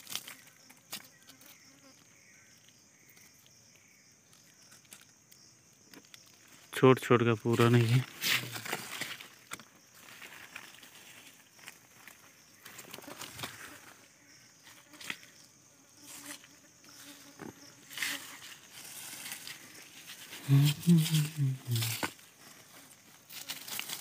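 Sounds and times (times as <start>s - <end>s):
dry leaves rustling: 0.0s - 1.0s, 7.5s - 13.8s, 17.8s - 24.0s
stick scraping forest floor: 7.9s - 11.8s, 17.8s - 24.0s
fly buzzing: 12.9s - 18.7s, 20.3s - 22.1s.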